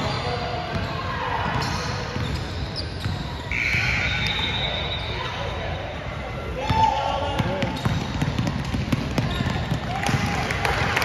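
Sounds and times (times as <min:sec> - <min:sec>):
game noise in large hall: 0:00.0 - 0:11.0
basketball bouncing on gym floor: 0:06.7 - 0:10.4.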